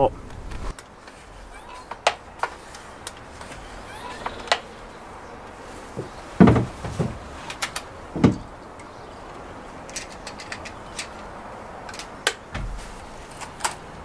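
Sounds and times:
dull thud: 6.0s - 7.3s, 8.2s - 8.5s, 12.5s - 13.1s.

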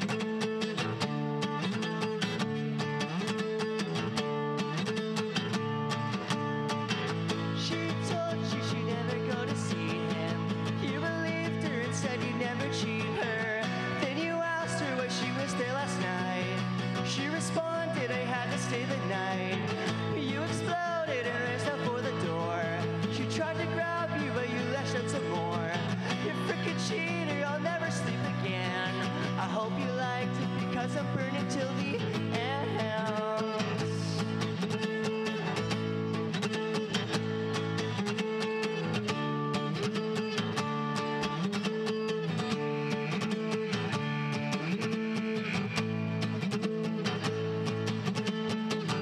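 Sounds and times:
acoustic guitar strumming: 0.0s - 49.0s
person singing: 7.3s - 35.8s.

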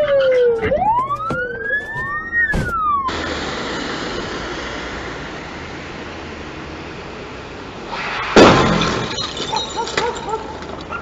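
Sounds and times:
siren wailing: 0.0s - 3.5s.

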